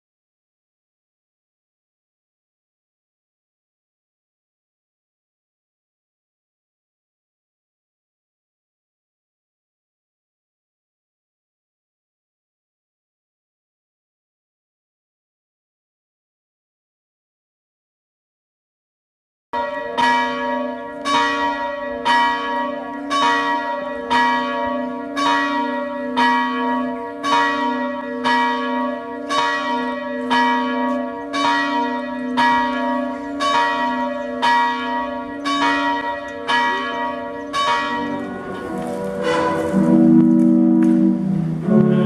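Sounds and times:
church bell ringing: 19.6 - 42.0.

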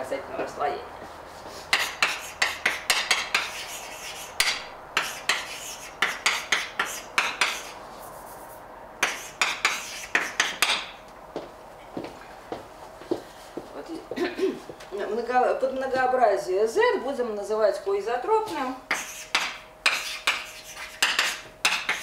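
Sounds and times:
chalk tapping and scratching: 1.4 - 10.8, 18.9 - 22.0.

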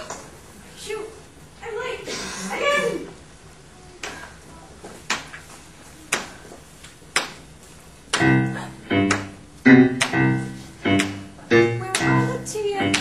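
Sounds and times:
piano playing chords: 8.2 - 13.0.

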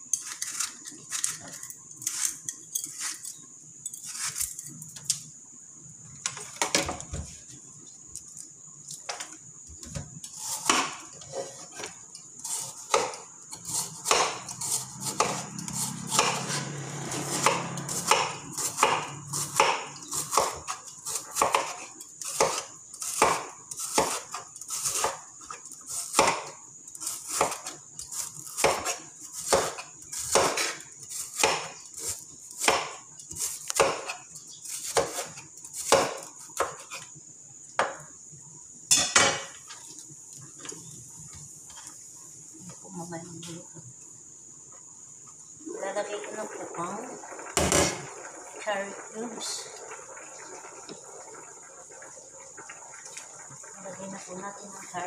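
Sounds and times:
knife chopping on cutting board: 10.5 - 11.0, 12.8 - 13.2, 13.9 - 16.6, 17.2 - 20.7, 21.3 - 21.8, 22.4 - 24.3, 27.3 - 27.7, 28.6 - 31.8, 32.6 - 36.9.

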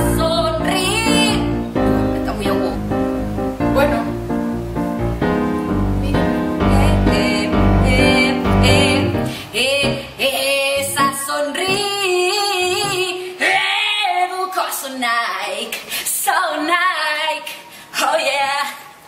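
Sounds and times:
woman singing with vibrato: 0.0 - 3.0, 3.7 - 4.3, 5.9 - 19.0
bass-heavy music: 0.0 - 10.0, 10.8 - 11.9.

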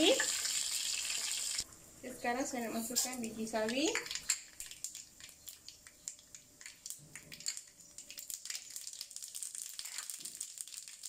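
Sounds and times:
mustard seeds popping in hot oil: 3.6 - 11.0.

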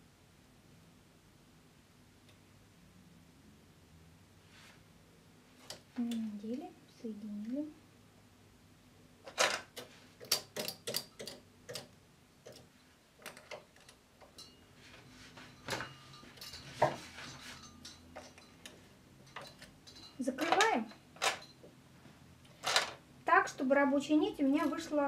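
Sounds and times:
knitting machine needles clicking: 9.3 - 14.5.

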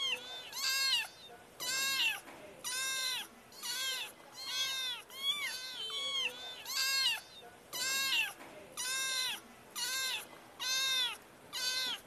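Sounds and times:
kitten meowing: 0.0 - 12.0.

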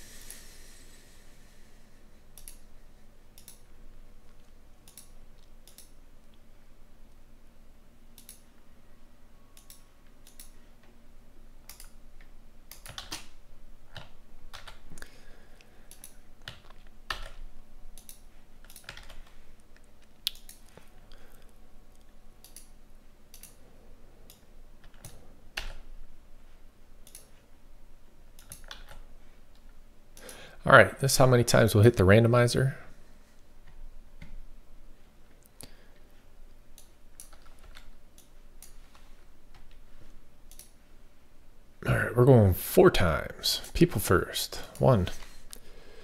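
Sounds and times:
computer keyboard typing: 12.7 - 13.3, 13.9 - 14.9, 15.9 - 19.4, 24.3 - 25.8, 28.4 - 29.0, 36.8 - 39.7.

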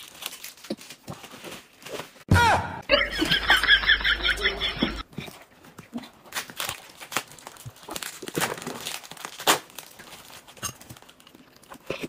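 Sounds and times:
packaging crinkling and tearing: 0.0 - 2.2, 6.0 - 12.0.

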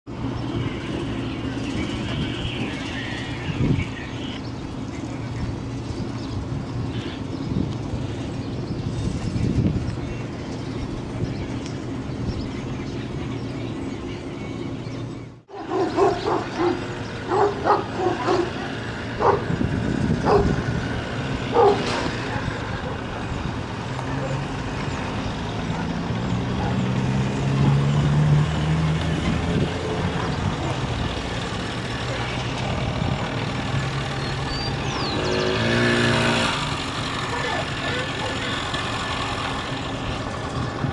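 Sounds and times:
diesel locomotive engine drone: 0.1 - 40.9
dog barking: 15.5 - 19.5, 20.2 - 20.6, 21.5 - 23.2.

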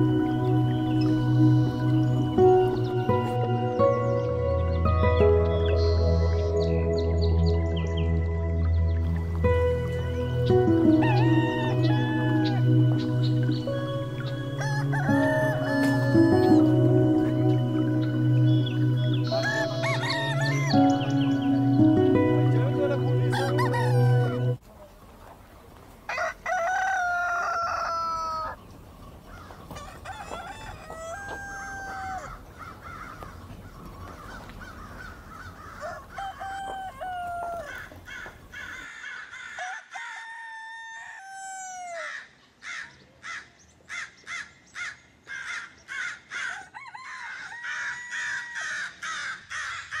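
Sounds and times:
rooster crowing: 10.8 - 13.1, 14.5 - 17.4, 19.2 - 21.3, 23.3 - 24.6, 26.1 - 28.6, 29.3 - 33.2, 35.3 - 42.3, 46.3 - 50.0.

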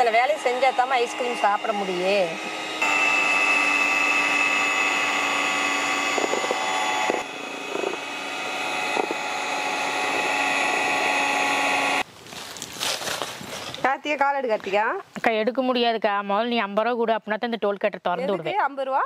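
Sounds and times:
electric hand mixer whining: 0.0 - 12.0.

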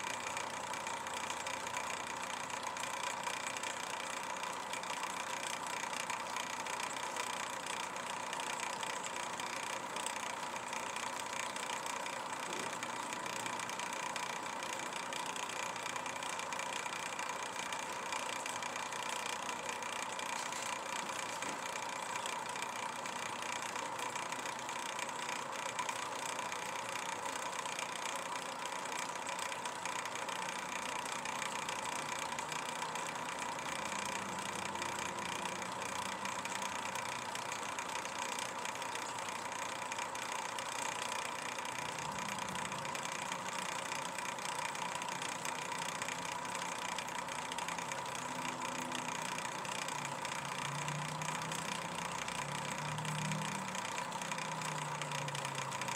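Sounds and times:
mechanical hum with whine: 0.0 - 55.9.

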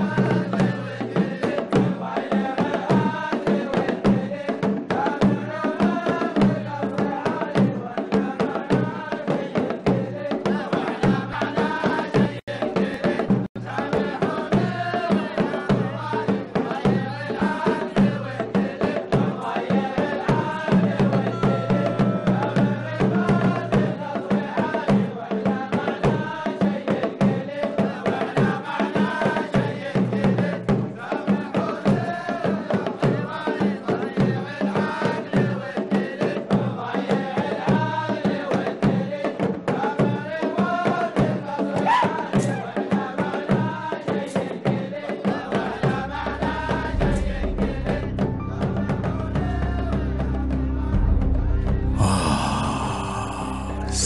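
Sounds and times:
fast drumming: 0.0 - 50.0
men chanting together: 0.0 - 54.0.

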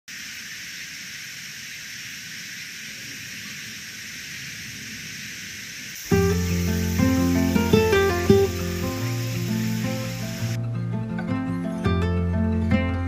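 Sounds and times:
steady high-pitched hiss: 0.1 - 10.6.

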